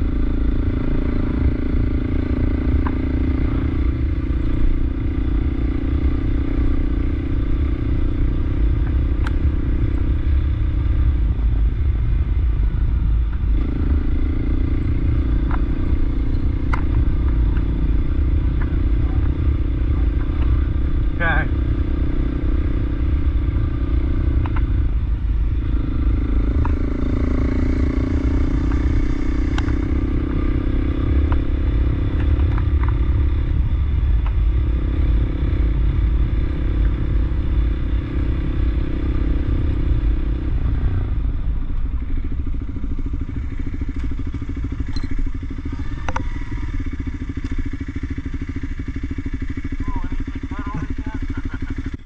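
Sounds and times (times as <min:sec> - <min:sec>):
motorcycle engine running: 0:00.0 - 0:52.0
wind and tyres rumble: 0:00.0 - 0:52.0
sharp ticks: 0:08.6 - 0:10.1, 0:24.2 - 0:24.8, 0:26.3 - 0:27.0, 0:28.7 - 0:29.8, 0:30.9 - 0:33.4.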